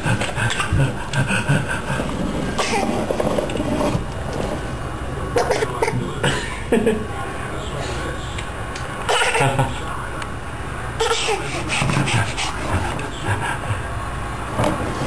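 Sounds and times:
toy wheels rolling on wooden floor: 2.0s - 4.8s.

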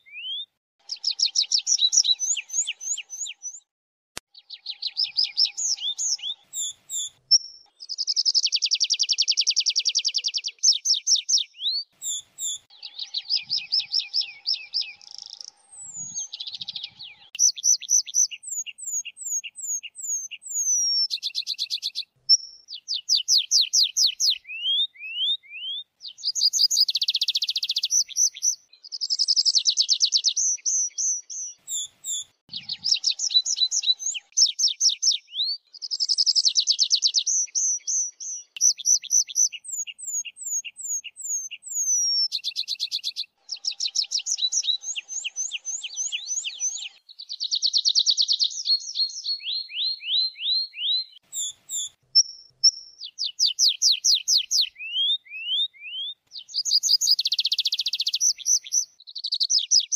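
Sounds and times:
bird singing trills: 0.0s - 3.7s, 4.3s - 59.9s.

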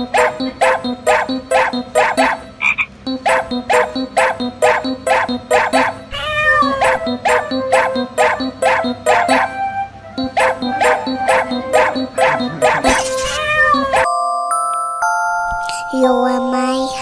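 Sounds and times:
repeated croaking: 0.0s - 9.5s, 10.2s - 14.0s.

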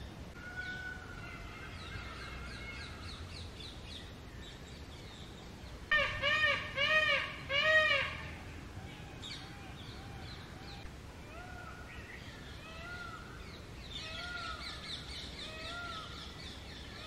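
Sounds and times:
bird calling: 5.9s - 17.0s.

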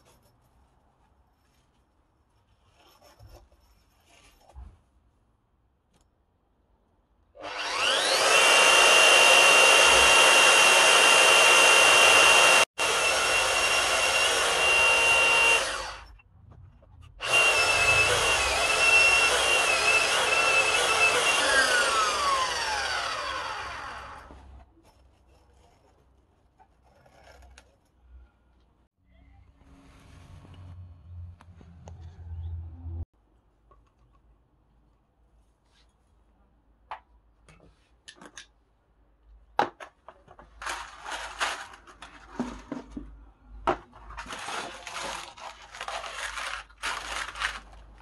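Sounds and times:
magnetic drill cutting steel: 7.4s - 16.1s, 17.2s - 24.2s.

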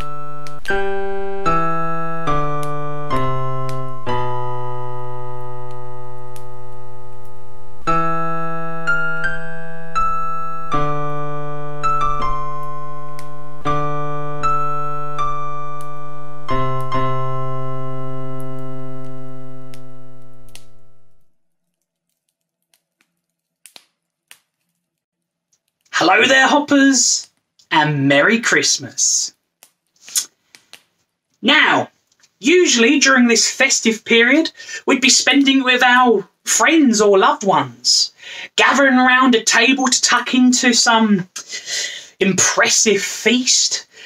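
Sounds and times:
keyboard playing chords and melody: 0.0s - 21.3s.

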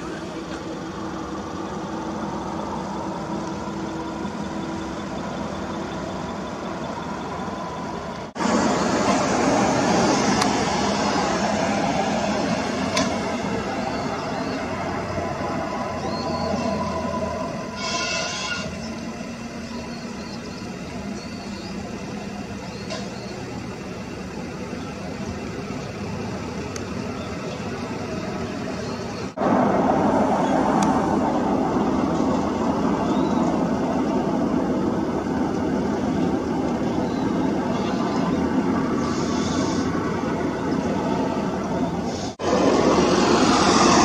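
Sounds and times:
distant road traffic: 0.0s - 44.0s
low engine drone: 0.0s - 44.0s
brief high hiss: 17.8s - 18.8s.

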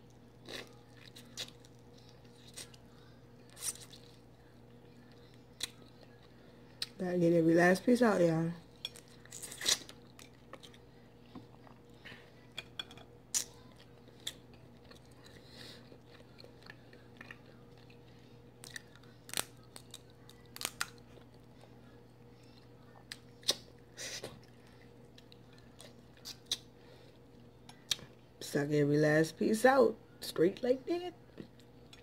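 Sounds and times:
chewing: 0.0s - 7.0s, 8.7s - 12.6s, 13.3s - 28.2s
faint steady hum: 0.0s - 32.0s.

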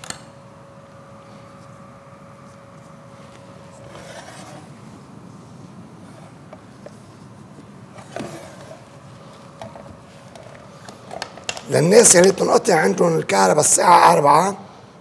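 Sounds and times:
brushing scrape: 3.7s - 4.8s.

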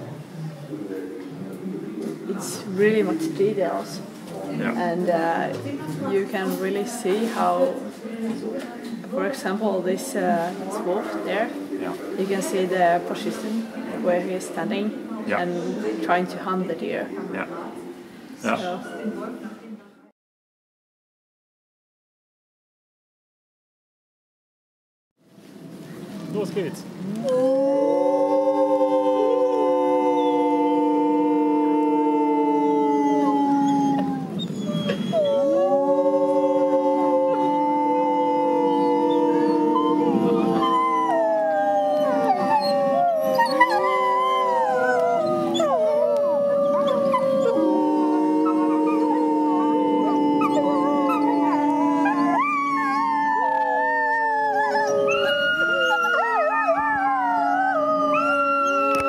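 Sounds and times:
people howling: 27.0s - 59.0s
wolf pups howling: 27.0s - 59.0s.

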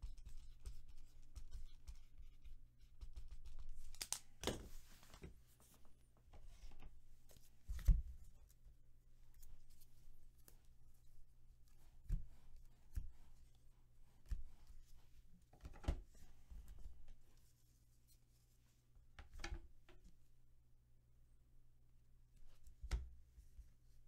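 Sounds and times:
soft knocks of cards set down: 4.0s - 5.4s.

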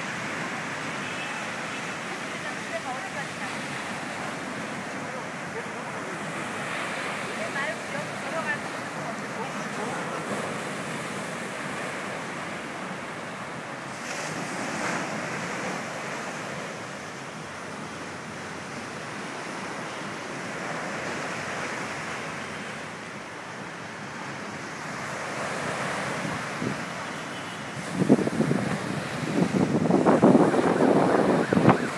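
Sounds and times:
surf washing up a beach: 0.0s - 31.9s
wind buffeting microphone: 27.7s - 31.9s.

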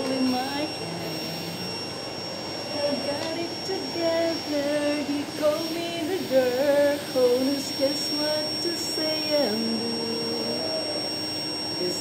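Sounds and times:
vacuum cleaner running: 0.0s - 12.0s
woman singing: 2.7s - 11.1s, 11.7s - 12.0s.

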